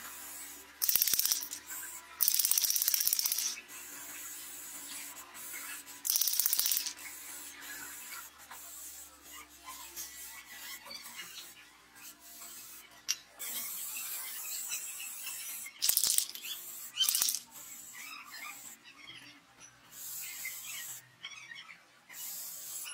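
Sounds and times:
spray paint can hissing: 0.1 - 9.4, 12.3 - 12.8, 13.4 - 18.7, 19.9 - 21.0, 22.2 - 22.9.

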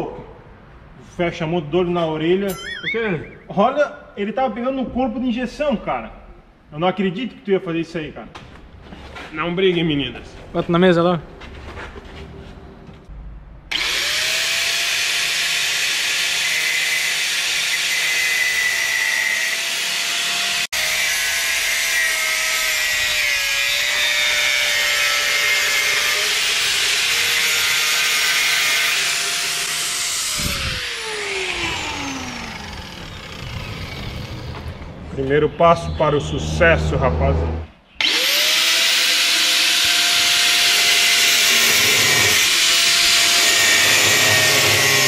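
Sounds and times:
angle grinder cutting metal: 13.7 - 34.7, 37.0 - 45.0
grinder disc spinning down: 28.9 - 34.8.

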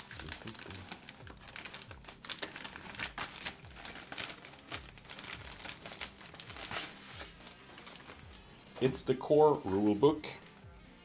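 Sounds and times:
plastic bag crinkling: 0.0 - 8.5.

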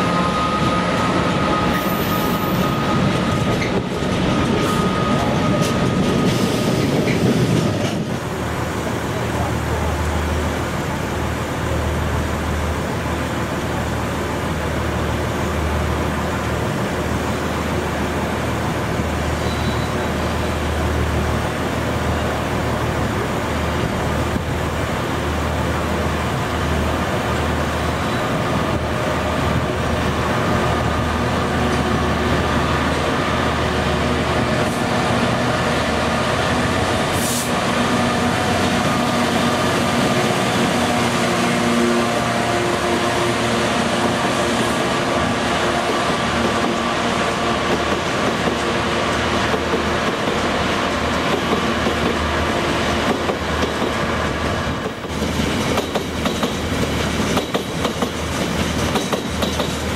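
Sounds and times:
locomotive engine drone with whine: 0.0 - 6.4
wheels rumbling on rails: 0.0 - 59.9.

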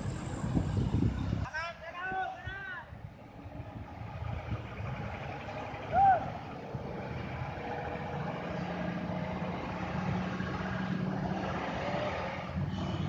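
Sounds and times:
truck diesel engine droning: 0.0 - 1.4, 3.0 - 13.0
motor scooters passing: 3.2 - 13.0.

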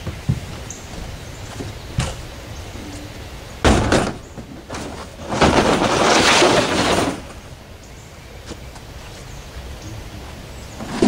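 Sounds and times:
plastic crate knocking on tailgate: 3.6 - 4.5
crate scraping along bed mat: 4.1 - 7.5, 10.8 - 11.0.

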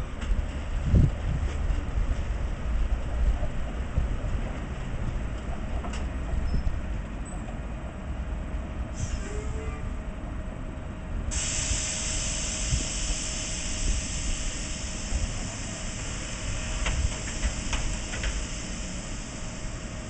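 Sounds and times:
tram hum and low rumble: 0.0 - 20.0
steady hiss: 11.3 - 20.0.

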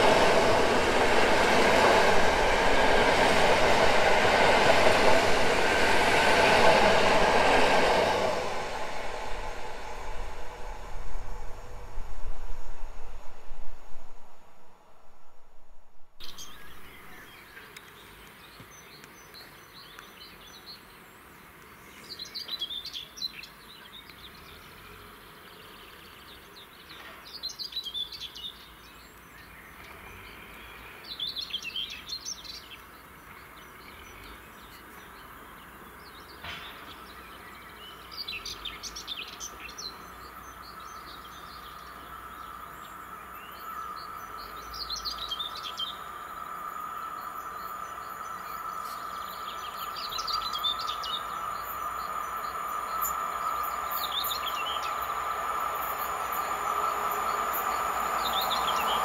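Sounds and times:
approaching electric train hum: 0.0 - 17.8, 27.8 - 59.0
birds singing: 16.2 - 59.0
outdoor hiss: 30.2 - 59.0.

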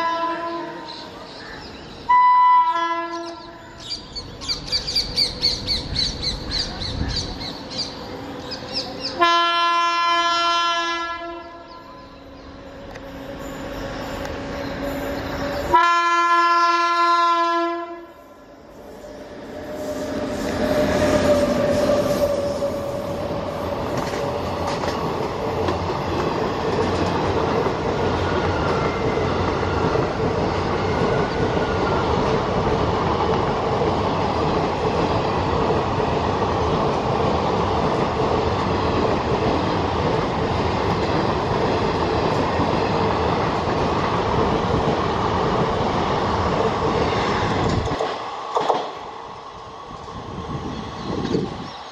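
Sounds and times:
train horn: 0.0 - 1.0, 2.1 - 3.6, 8.6 - 18.4
train wheels clacking: 19.9 - 32.4.

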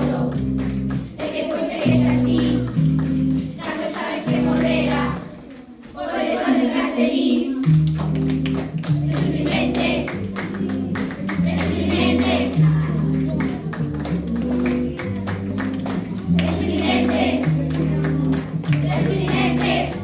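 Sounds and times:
children singing together: 0.0 - 0.4, 1.1 - 2.8, 3.4 - 7.7, 9.1 - 13.3, 16.4 - 20.0
instrumental music with bass line: 0.0 - 5.2, 7.6 - 20.0
hand clapping in time: 0.0 - 5.4, 7.6 - 20.0.

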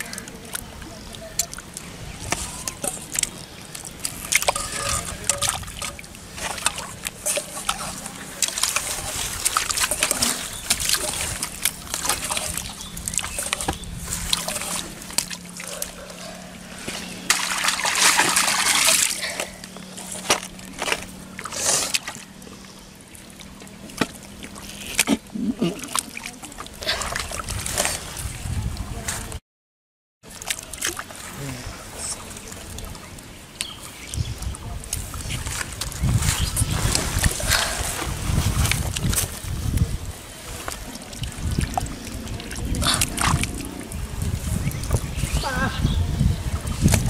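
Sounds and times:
hands splashing in mud: 16.9 - 19.5.

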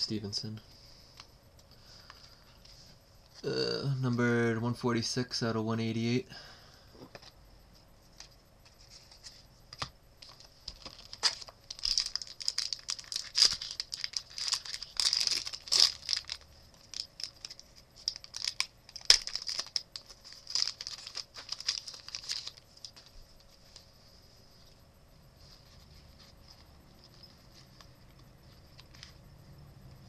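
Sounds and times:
foil wrapper crinkling and tearing: 10.4 - 23.5.

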